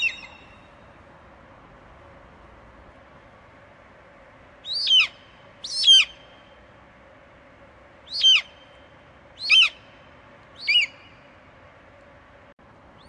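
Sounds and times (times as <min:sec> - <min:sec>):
eagle calling: 0:00.0 - 0:00.7, 0:04.6 - 0:06.3, 0:08.1 - 0:08.8, 0:09.4 - 0:10.0, 0:10.6 - 0:11.2
faint steady hiss: 0:00.0 - 0:13.0.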